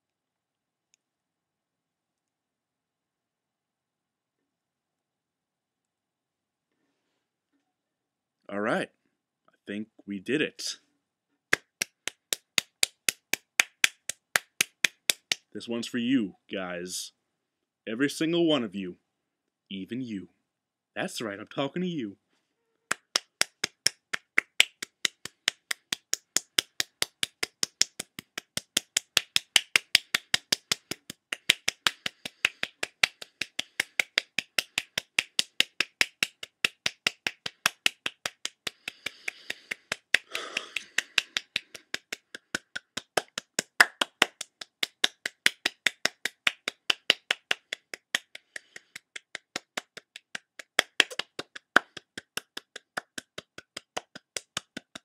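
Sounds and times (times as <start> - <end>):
fingers snapping: 22.9 - 55.0.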